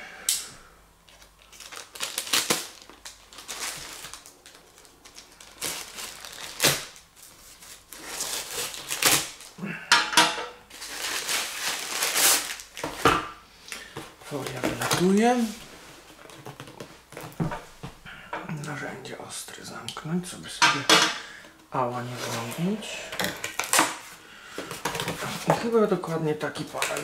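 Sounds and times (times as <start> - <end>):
plastic crinkling and rustling: 1.0 - 9.6, 10.7 - 13.2, 13.8 - 17.8, 21.8 - 27.0.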